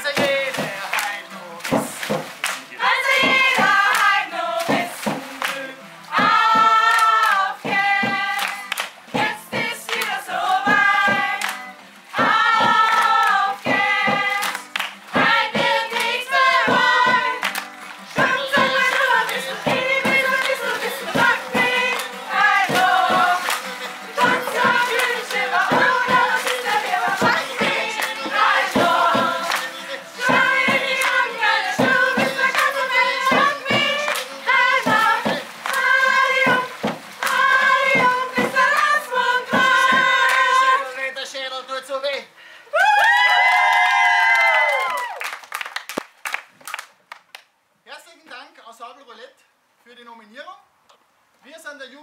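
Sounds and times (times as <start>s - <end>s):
sharp hand claps: 0.0s - 40.6s, 44.4s - 47.5s
youth choir singing: 2.7s - 41.0s.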